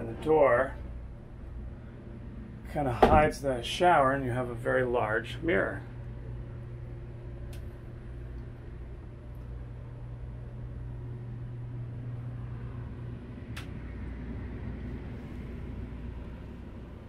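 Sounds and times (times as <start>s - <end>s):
low mechanical hum: 0.0s - 17.0s
faint clicks: 7.4s - 8.5s, 13.5s - 13.8s.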